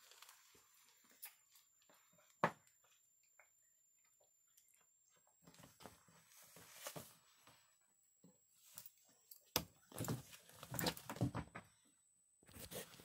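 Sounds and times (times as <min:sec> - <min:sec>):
rustling and scraping: 0:05.5 - 0:07.6.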